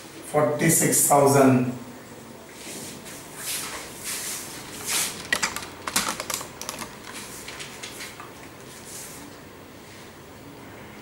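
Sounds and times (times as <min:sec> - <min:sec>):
small clicks and taps: 0:05.2 - 0:08.3.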